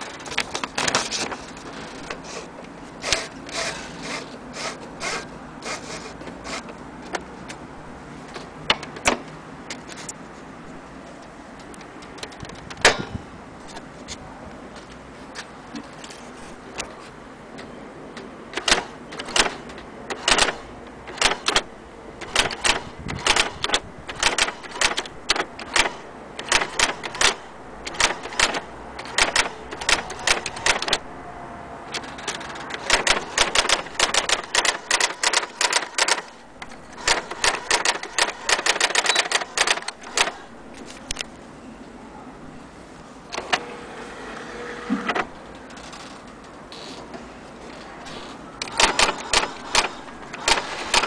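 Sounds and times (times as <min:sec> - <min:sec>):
electronic typewriter print clacks: 0:18.5 - 0:31.0, 0:31.9 - 0:40.5, 0:48.1 - 0:51.0.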